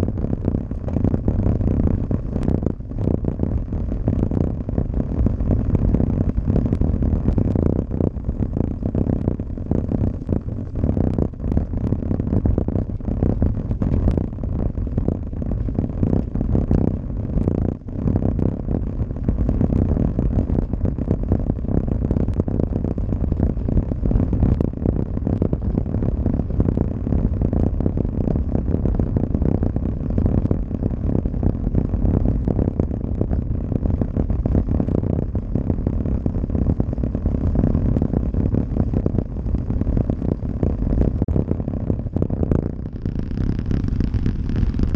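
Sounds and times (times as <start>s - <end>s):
low rumble: 0.0s - 44.9s.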